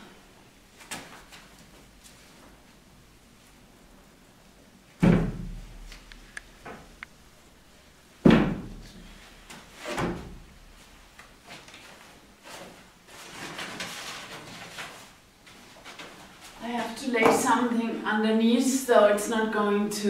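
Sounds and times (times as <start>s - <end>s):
heavy panel thumping on floor: 8.2s - 8.9s.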